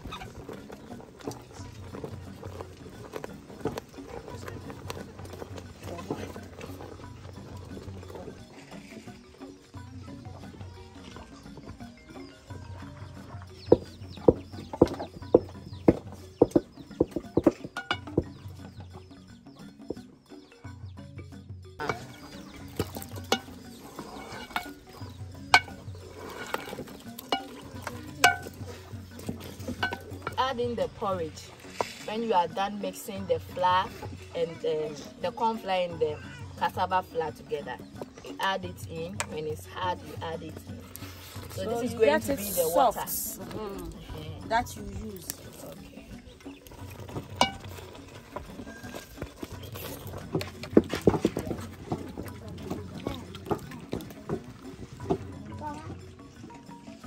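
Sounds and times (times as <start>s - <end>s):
wooden paddle beating dough in pot: 0.0s - 8.6s, 13.4s - 18.9s, 21.8s - 32.2s, 46.3s - 55.4s
metallic clinks against a pot: 17.7s - 18.3s, 21.8s - 30.6s, 47.3s - 47.9s
soft stirring in a pot: 21.8s - 30.5s.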